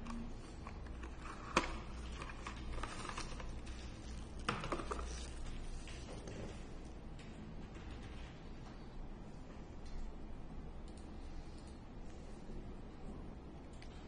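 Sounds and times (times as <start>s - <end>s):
cardboard and plastic handling: 0.0s - 6.6s
low steady hum: 0.0s - 14.0s.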